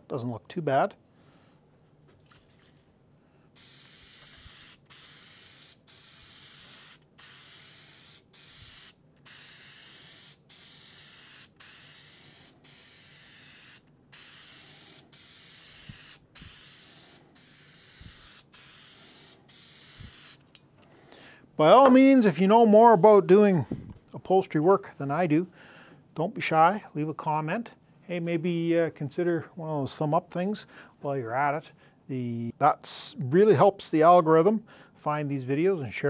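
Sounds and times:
aerosol spray can hissing: 0:03.6 - 0:20.5.

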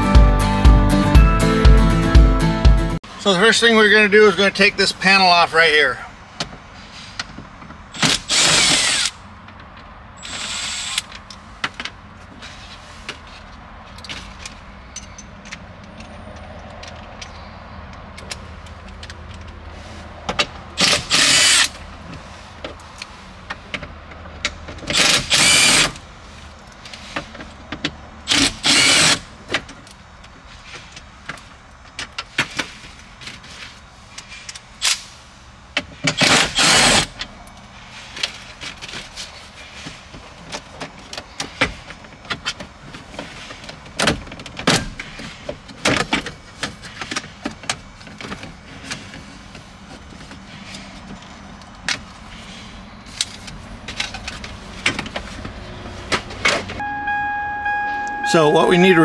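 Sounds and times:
cordless drill bursts: 0:08.0 - 0:09.2, 0:10.2 - 0:11.1, 0:20.8 - 0:21.7, 0:24.9 - 0:26.0, 0:28.3 - 0:29.2, 0:36.2 - 0:37.1.

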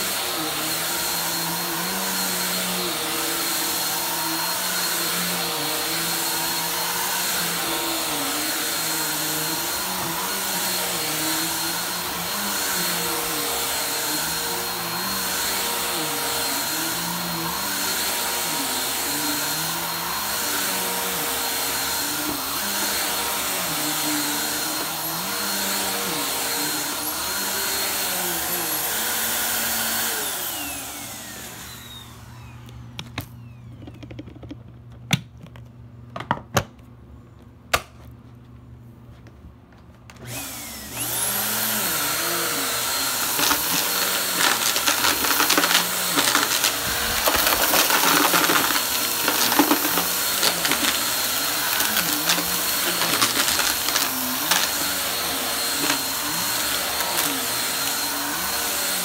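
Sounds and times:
vacuum cleaner on carpet: 0:00.0 - 0:34.0, 0:40.1 - 0:59.0.

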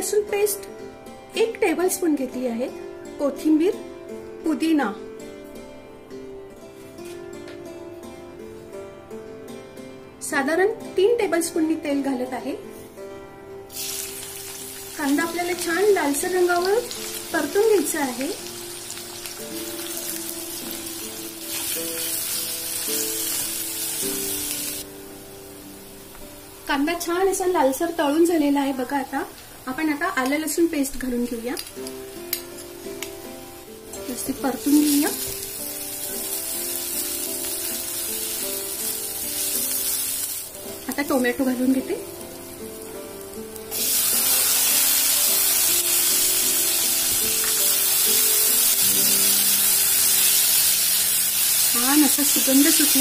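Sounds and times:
background music: 0:00.0 - 0:53.0
onions sizzling in hot oil: 0:13.7 - 0:53.0.

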